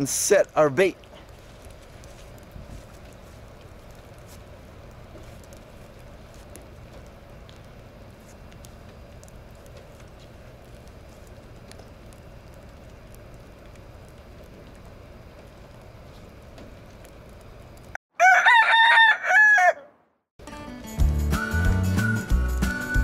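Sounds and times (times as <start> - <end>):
rooster crowing: 18.1 - 20.0
music: 20.4 - 23.0.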